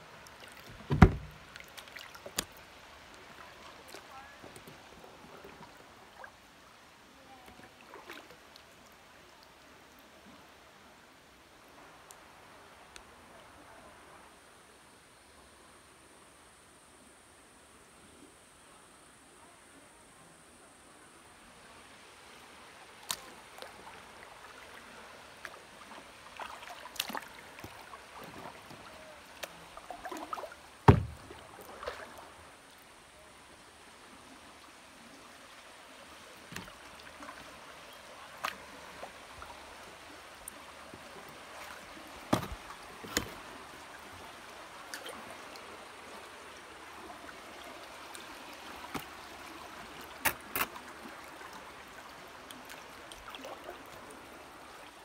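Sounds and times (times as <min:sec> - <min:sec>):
paddle splashing in water: 0:00.2 - 0:06.4, 0:07.5 - 0:08.4, 0:23.0 - 0:32.4, 0:36.4 - 0:39.8, 0:40.5 - 0:44.1, 0:47.1 - 0:54.2
sharp knocks: 0:00.9 - 0:01.4, 0:30.9 - 0:31.2.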